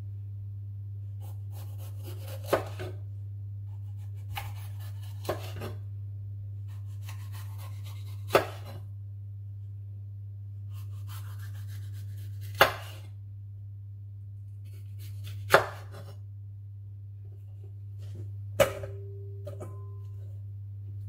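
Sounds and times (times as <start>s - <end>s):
steady low hum: 0.0s - 21.0s
knife slicing pepper on board: 1.2s - 3.0s, 3.7s - 5.8s, 6.7s - 8.8s, 10.7s - 13.1s, 14.6s - 16.2s.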